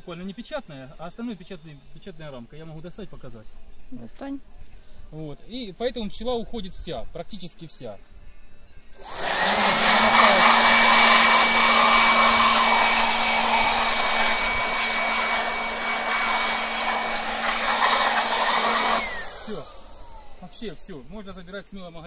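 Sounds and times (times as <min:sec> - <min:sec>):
rushing air: 0:09.0 - 0:20.5
electric blower whining: 0:09.0 - 0:20.8.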